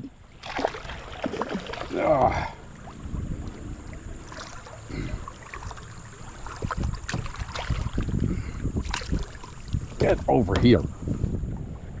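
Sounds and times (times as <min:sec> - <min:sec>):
wind buffeting microphone: 0:01.2 - 0:12.0.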